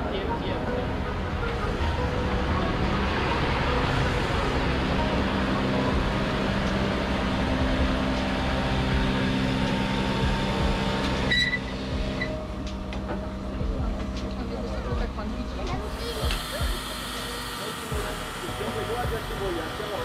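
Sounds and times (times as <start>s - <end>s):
low machinery hum: 0.0s - 20.0s
steam hissing: 15.9s - 20.0s.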